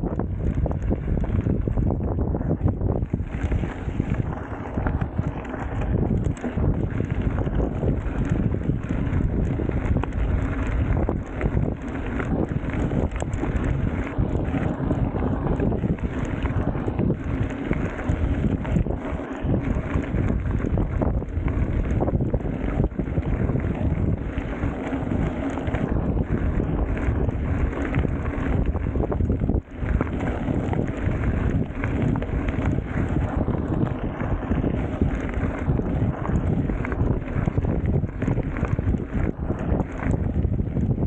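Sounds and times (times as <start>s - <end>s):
bike tyres rumbling on gravel: 0.0s - 41.0s
wind buffeting microphone: 0.0s - 41.0s.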